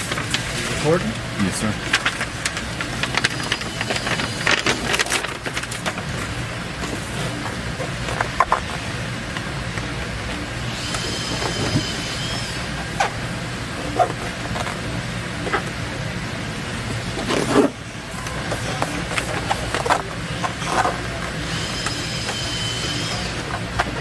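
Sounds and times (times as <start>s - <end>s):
foil sheet crackling: 0.0s - 8.7s
paper liner peeling and crinkling: 0.0s - 10.0s
steady low hum: 0.0s - 24.0s.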